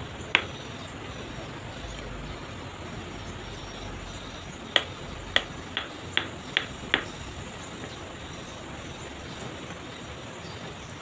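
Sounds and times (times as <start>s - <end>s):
hammer tapping on stone: 0.4s - 0.6s, 4.8s - 7.3s.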